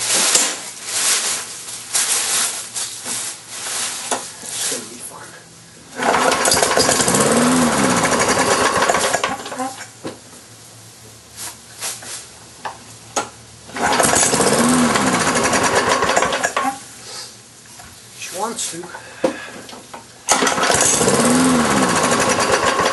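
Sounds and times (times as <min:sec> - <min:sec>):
lawn mower engine starting and dying: 0:05.9 - 0:09.8, 0:13.7 - 0:16.8, 0:20.3 - 0:22.9.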